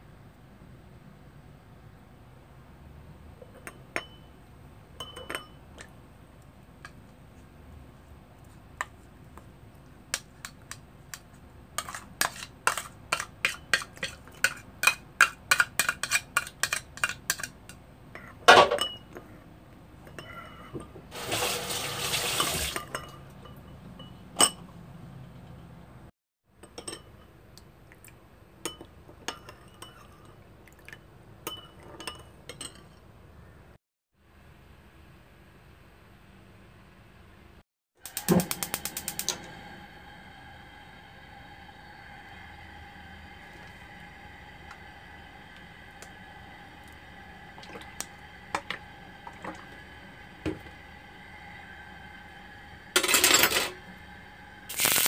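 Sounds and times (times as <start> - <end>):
metal spoon clinking in ceramic bowl: 3.5 - 4.3, 5.0 - 5.9, 26.6 - 27.3, 31.4 - 33.0.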